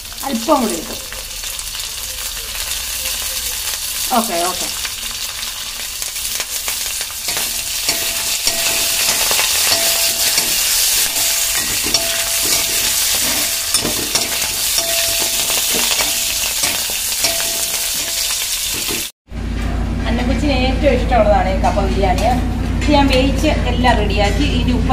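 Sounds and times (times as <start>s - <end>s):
onion sizzling in hot oil: 0.0s - 19.2s
steel spoon scraping a pan: 6.6s - 19.1s.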